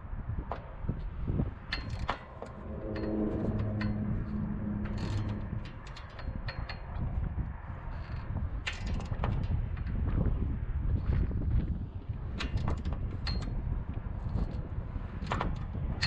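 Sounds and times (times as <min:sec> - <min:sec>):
low steady hum: 0:01.6 - 0:07.0
low rumble: 0:02.0 - 0:07.6
clicks and rattles of wiring: 0:08.0 - 0:10.0, 0:12.3 - 0:13.6.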